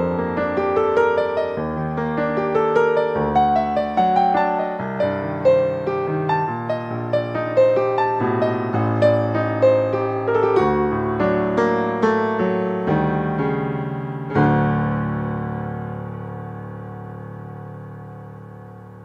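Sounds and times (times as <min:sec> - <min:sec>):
slow solo piano: 0:00.0 - 0:19.0.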